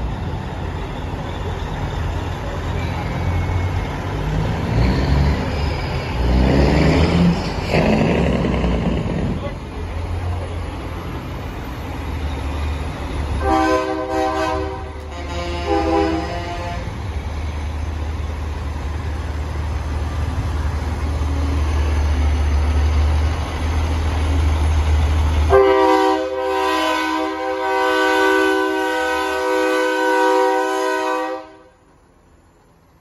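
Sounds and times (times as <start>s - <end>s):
diesel trucks rumbling: 0.0s - 33.0s
loud multi-tone air horn: 13.4s - 17.0s, 25.5s - 31.8s.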